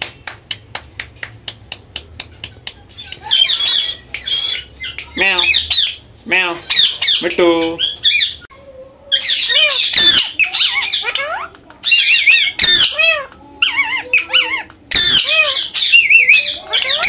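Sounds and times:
parakeet squawking and chattering: 2.8 - 8.5, 9.1 - 17.0.

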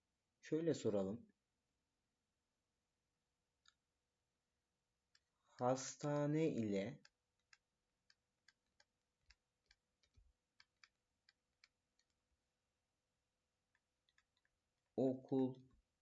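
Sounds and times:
light clicks of handwriting on screen: 5.1 - 12.3.

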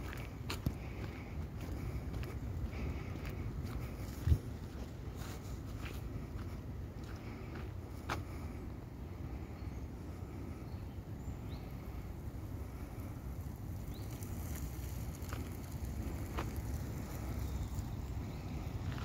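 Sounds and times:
wind buffeting microphone: 0.0 - 7.9, 11.8 - 19.0.

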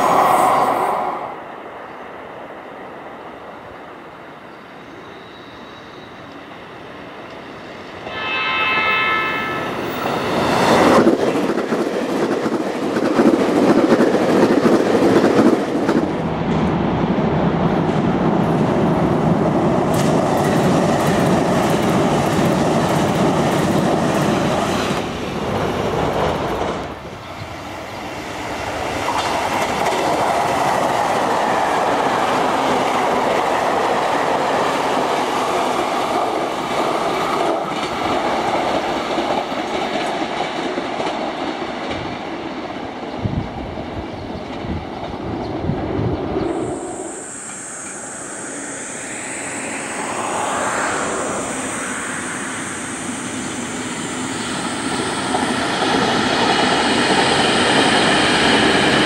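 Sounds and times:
train wheels rumbling on rails: 5.2 - 59.0
train horn: 8.0 - 10.4.

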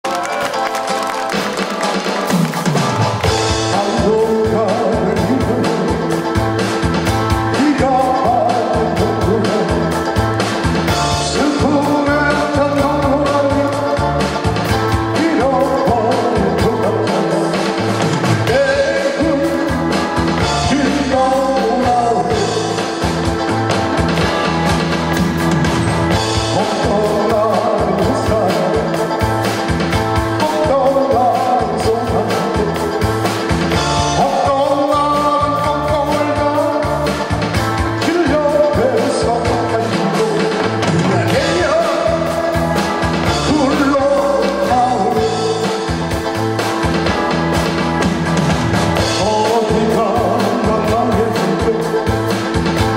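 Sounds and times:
backing music with steady beat: 0.0 - 52.9
man singing into a microphone: 3.5 - 6.5, 7.4 - 10.2, 11.0 - 23.0, 26.3 - 29.4, 30.2 - 46.0, 49.0 - 52.6.

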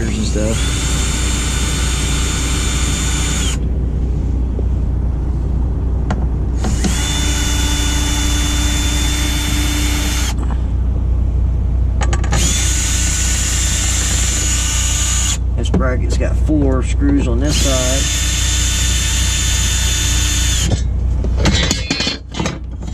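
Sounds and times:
steady low hum: 0.0 - 22.9
cordless drill whining: 0.4 - 3.6, 6.6 - 10.4, 12.3 - 15.4, 17.5 - 20.7
drill clicks: 6.6 - 10.4, 12.2 - 15.4.

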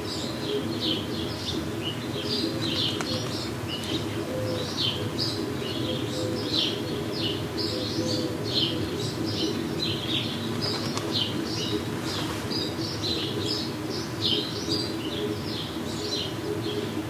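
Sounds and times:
low cooing: 0.0 - 17.0.

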